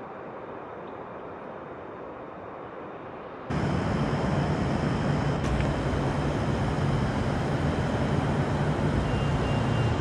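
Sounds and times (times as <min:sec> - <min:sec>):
light-rail train running: 0:00.0 - 0:10.0
low hum: 0:03.5 - 0:10.0.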